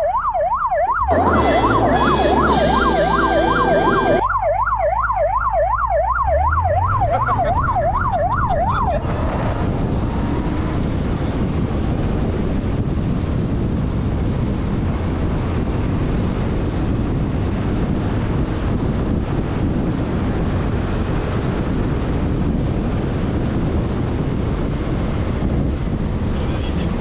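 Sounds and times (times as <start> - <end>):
siren yelping: 0.0 - 10.6
wind rush on microphone: 6.2 - 27.0.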